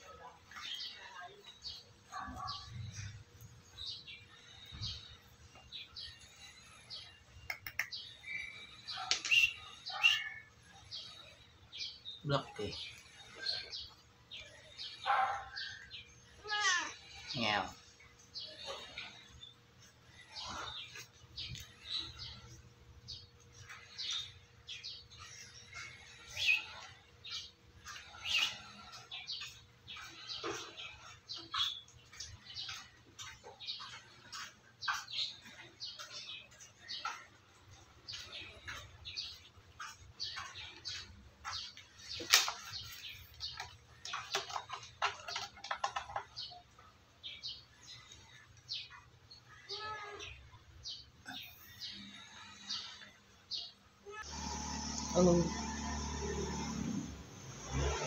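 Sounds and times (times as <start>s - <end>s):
small birds chirping: 0.0s - 58.0s
kittens mewing: 16.4s - 17.2s.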